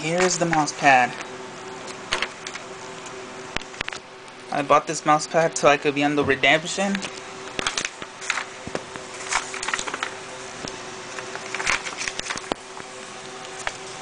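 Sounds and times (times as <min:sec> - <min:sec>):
faint steady hum: 0:00.0 - 0:14.0
plastic and paper rustling: 0:06.9 - 0:12.6.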